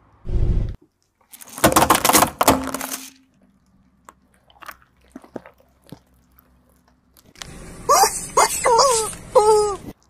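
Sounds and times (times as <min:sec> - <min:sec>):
plastic toy crunching under tyre: 0:01.1 - 0:03.4.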